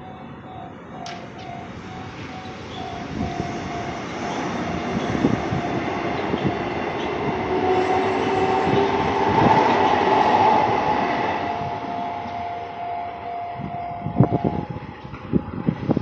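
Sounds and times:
level crossing warning bell: 0.0 - 15.0
train whining tone: 0.0 - 16.0.

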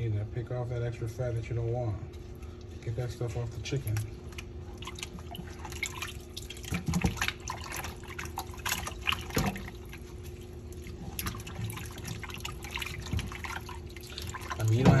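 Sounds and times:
water splashing in a pot: 3.9 - 15.0.

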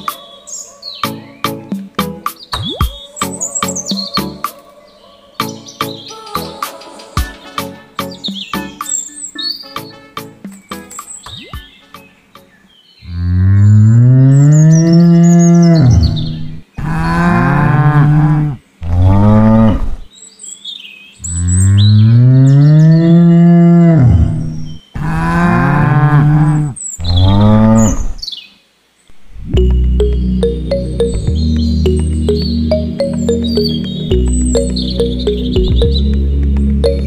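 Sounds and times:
cow mooing: 13.1 - 20.1, 21.4 - 28.2.

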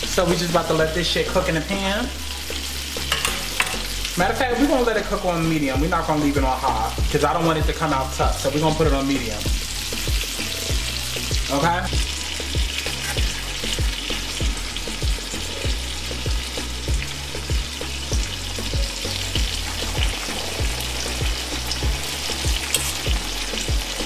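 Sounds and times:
oil sizzling in a skillet: 0.0 - 24.0
low steady beat: 5.8 - 24.0.

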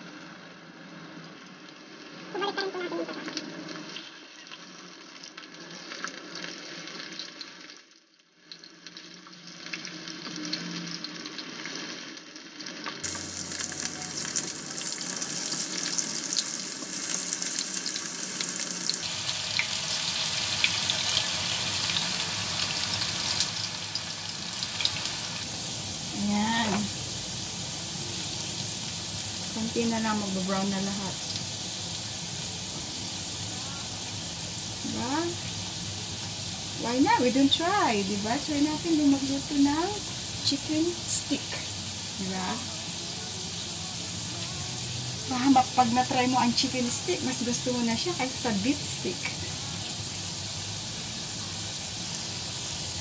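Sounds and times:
potato slices sizzling in oil: 0.0 - 53.0
spatula turning food in pan: 13.0 - 53.0.

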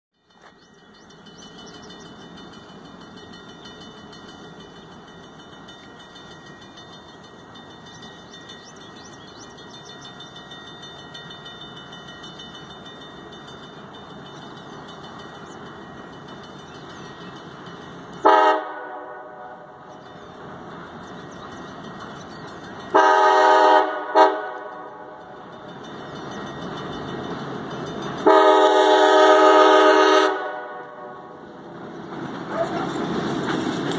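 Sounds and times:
train rumbling: 0.2 - 33.9
locomotive air horn blasts: 18.2 - 19.7, 22.9 - 24.9, 28.2 - 31.4.

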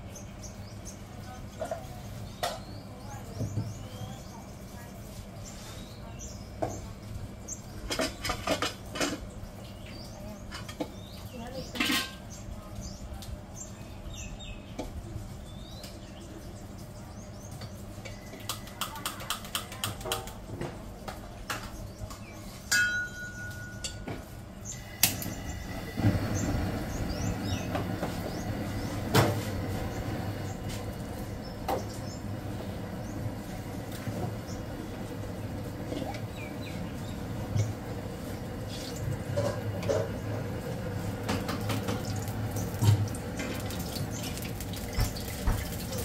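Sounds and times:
birds chirping: 0.0 - 46.0
utensils clinking: 22.7 - 24.1.

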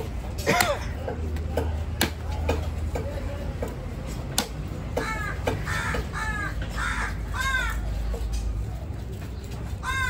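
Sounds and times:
crows cawing: 4.9 - 8.0, 9.8 - 10.0.

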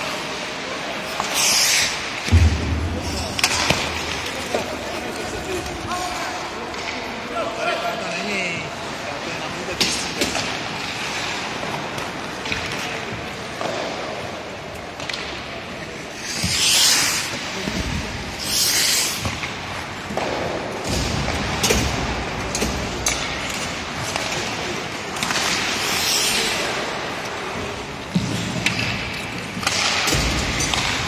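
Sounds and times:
skate blades scraping ice: 0.0 - 2.3, 15.8 - 20.7, 23.4 - 31.0
hockey sticks and puck clacking: 0.0 - 7.8, 8.9 - 31.0.

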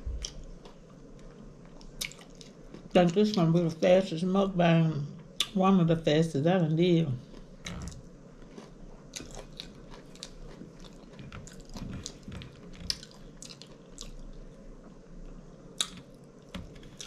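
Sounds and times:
close-miked chewing: 0.2 - 3.5, 7.2 - 14.6.

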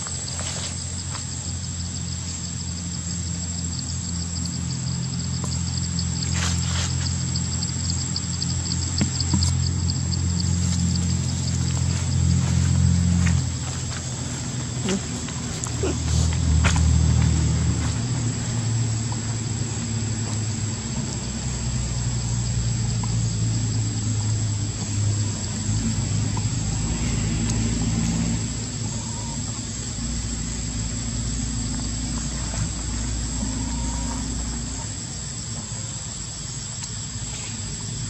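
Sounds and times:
low engine drone: 0.0 - 36.6.

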